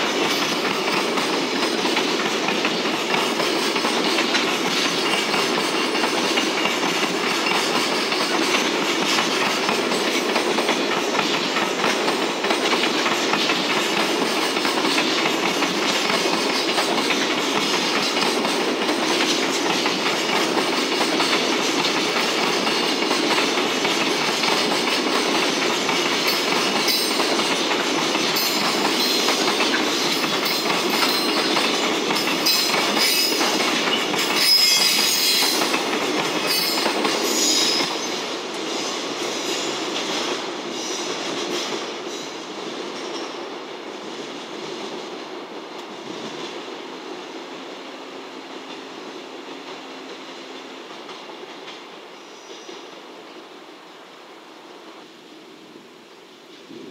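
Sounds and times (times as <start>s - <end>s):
wheels clacking over rail joints: 0.0s - 38.7s
freight train rolling past: 0.0s - 56.9s
high wheel squeal: 32.2s - 35.7s, 36.4s - 38.2s.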